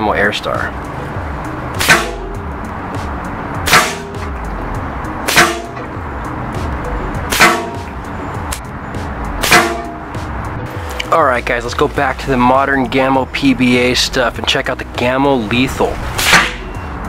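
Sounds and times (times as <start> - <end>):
air rifle shots: 1.8 - 2.2, 3.7 - 4.3, 5.3 - 5.7, 9.4 - 9.9, 16.2 - 16.6.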